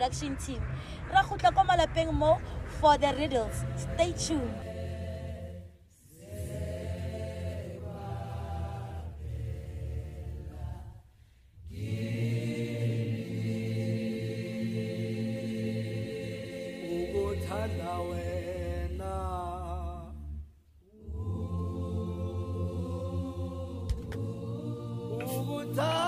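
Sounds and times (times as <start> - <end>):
steady low backing: 0.0 - 11.0
man singing a slow hymn: 25.2 - 26.0.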